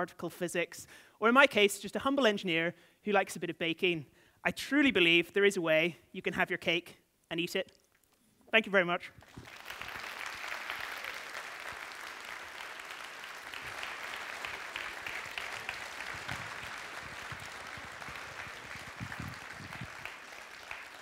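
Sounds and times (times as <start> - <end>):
audience applauding: 9.2 - 21.0.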